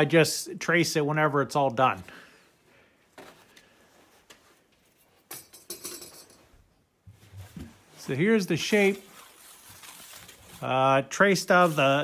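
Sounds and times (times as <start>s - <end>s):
metallic clinking rattle: 5.3s - 6.5s.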